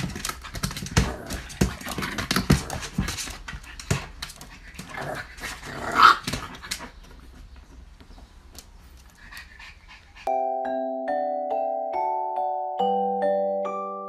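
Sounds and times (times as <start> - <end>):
puppy panting and snuffling: 8.8 - 10.3.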